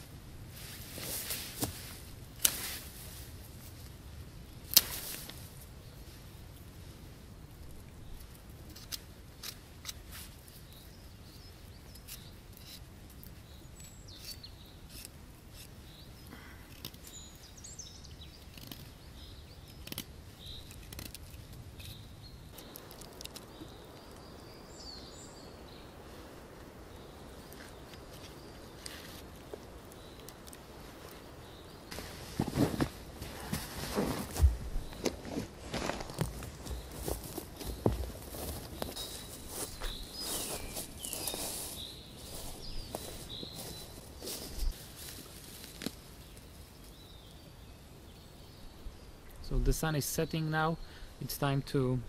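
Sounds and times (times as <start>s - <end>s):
faint bird chirps: 38.8s - 44.7s.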